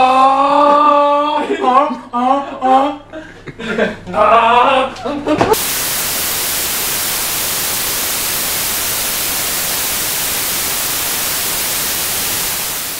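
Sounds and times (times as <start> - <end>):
white-noise static hiss: 5.6 - 12.9.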